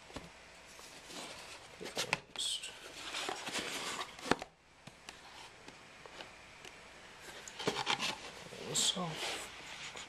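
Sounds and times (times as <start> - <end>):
box and packing rustling: 0.1 - 2.2, 2.8 - 4.5, 7.3 - 10.0.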